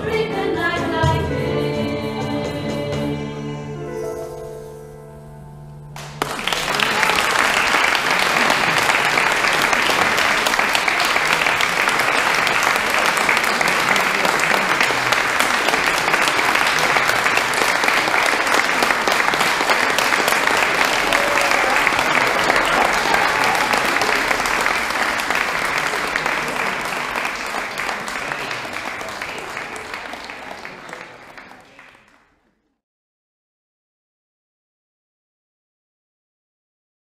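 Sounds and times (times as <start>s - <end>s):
vocal group singing chord: 0.0s - 4.6s
audience applause: 6.0s - 32.6s.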